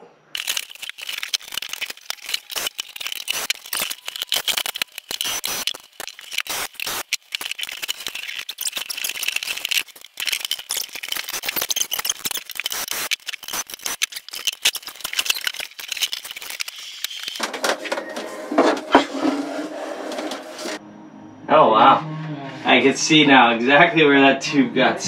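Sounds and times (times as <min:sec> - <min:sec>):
hand tools clicking and rattling: 0:00.4 - 0:17.7.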